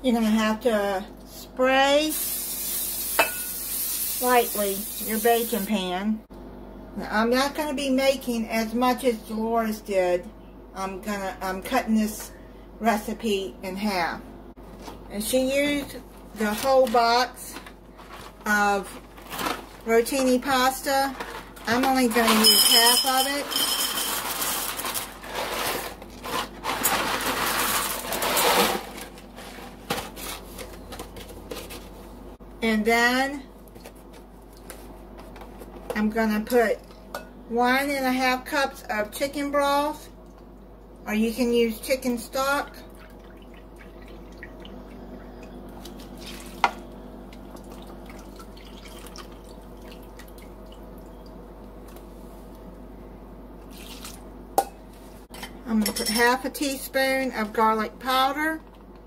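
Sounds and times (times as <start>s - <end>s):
broth pouring and dripping: 47.5s - 51.4s.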